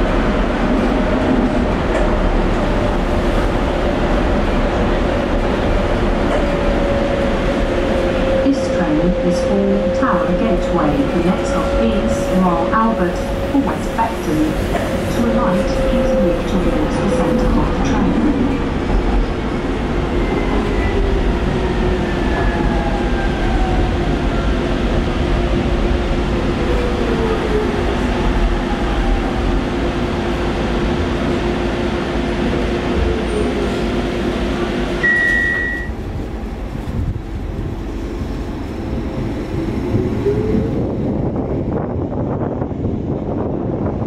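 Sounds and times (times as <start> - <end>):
train car rumble: 0.0 - 44.0
short high beep: 35.0 - 36.0.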